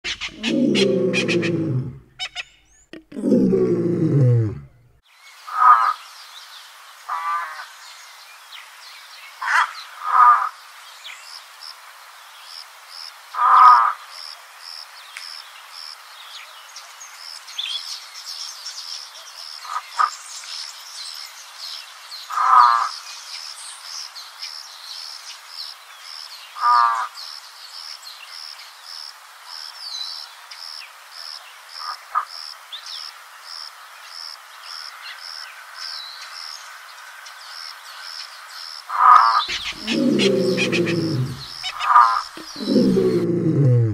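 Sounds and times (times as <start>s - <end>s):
bird raspy calls: 0.0s - 3.8s, 39.0s - 43.9s
background hiss: 0.0s - 22.3s, 27.2s - 43.9s.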